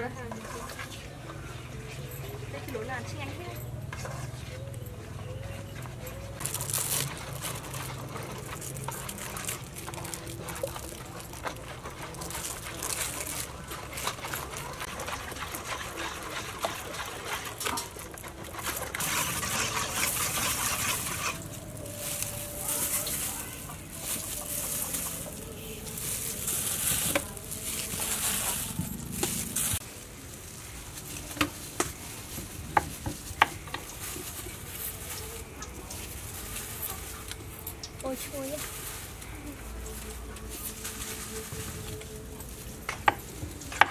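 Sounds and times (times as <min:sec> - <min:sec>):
metal spoon stirring batter: 0:00.0 - 0:29.8.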